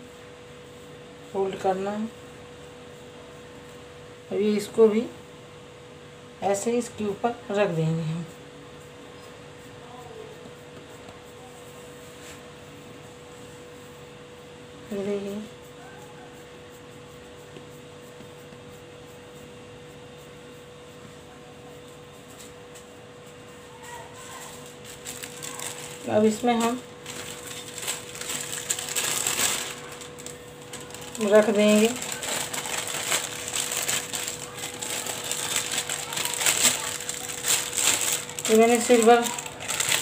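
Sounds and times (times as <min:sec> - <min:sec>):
appliance hum: 0:00.0 - 0:40.0
aluminium foil crinkling: 0:24.1 - 0:40.0.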